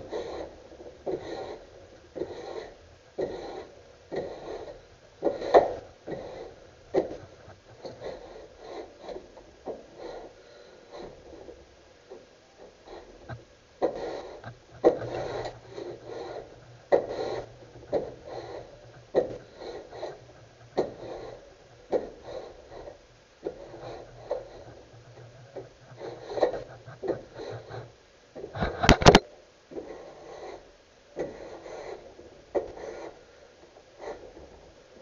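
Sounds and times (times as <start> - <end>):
wood plane shaving swish: 0.0 - 9.3, 13.8 - 27.9.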